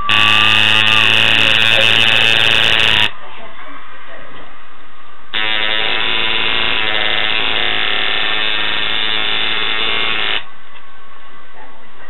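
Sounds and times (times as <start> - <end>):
tattoo machine buzzing: 0.0 - 3.1, 5.4 - 10.5.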